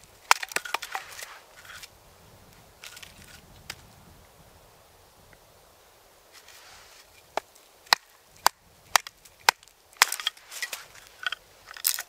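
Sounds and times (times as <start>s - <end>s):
wood cracking and splintering: 0.0s - 1.9s, 7.4s - 12.0s.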